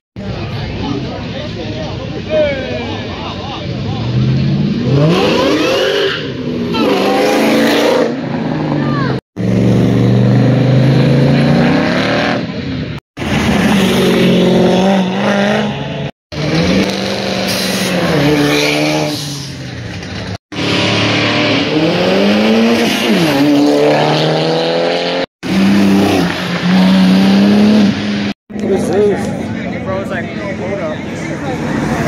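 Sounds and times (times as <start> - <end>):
car engines revving: 0.2 - 32.0.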